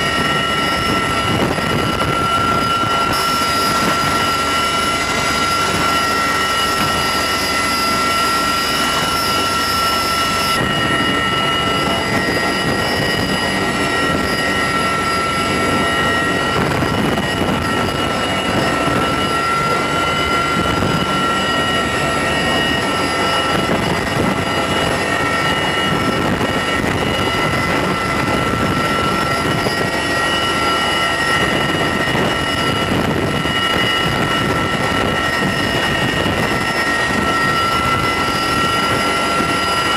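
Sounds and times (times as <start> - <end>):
helicopter rotor and engine noise: 0.0 - 39.9
high-pitched whines: 0.0 - 39.9.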